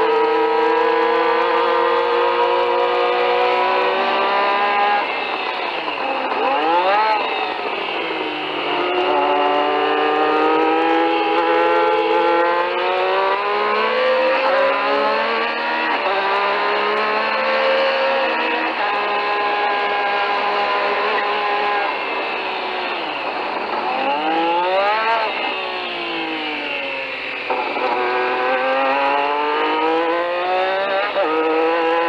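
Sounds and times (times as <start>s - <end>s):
racing car engine shifting gears: 0.0s - 32.0s.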